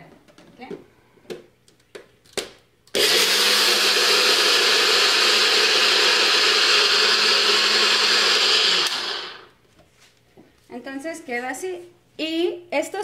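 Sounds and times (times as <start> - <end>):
blender motor grinding seeds: 3.0 - 9.6.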